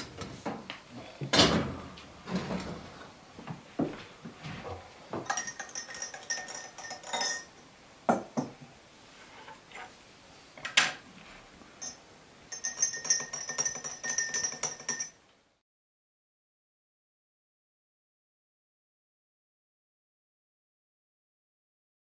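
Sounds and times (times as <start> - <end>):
spoons clinking in glasses: 5.2 - 7.6, 11.8 - 15.2
glass knocking on table: 8.1 - 8.6.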